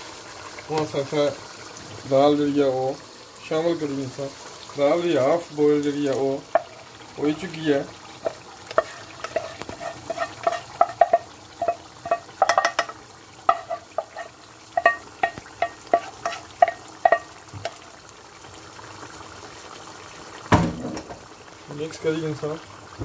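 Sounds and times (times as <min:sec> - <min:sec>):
gravy sizzling: 0:00.0 - 0:23.0
pan tapping on wok: 0:06.5 - 0:07.4, 0:08.2 - 0:17.9.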